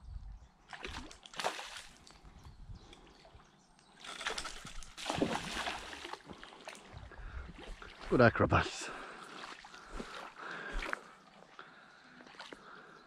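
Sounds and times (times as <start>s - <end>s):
fish thrashing and splashing: 4.0s - 6.9s.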